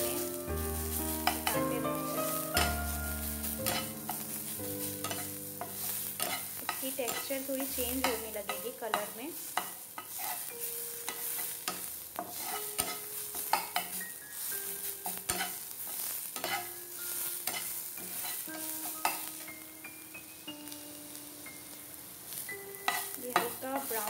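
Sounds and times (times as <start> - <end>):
spatula scraping a pan: 0.0 - 19.6, 22.7 - 24.0
food sizzling in a pan: 0.0 - 24.0.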